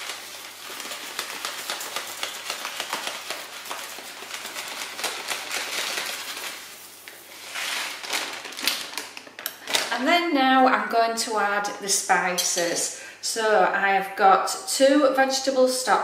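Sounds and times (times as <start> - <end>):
lentils pattering into pot: 0.0 - 9.9
plastic bag rustling: 0.0 - 10.0.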